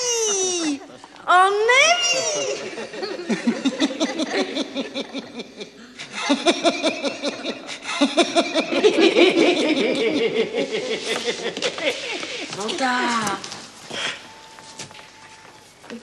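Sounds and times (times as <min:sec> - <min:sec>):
people laughing: 0:02.1 - 0:12.7.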